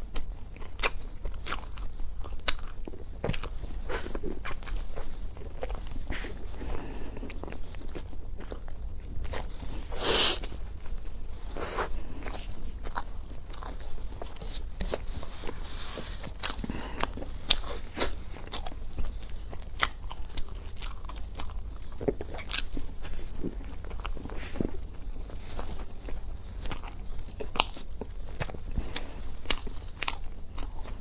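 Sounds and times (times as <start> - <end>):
chewing with wet mouth clicks: 0.0 - 9.6, 16.3 - 31.0.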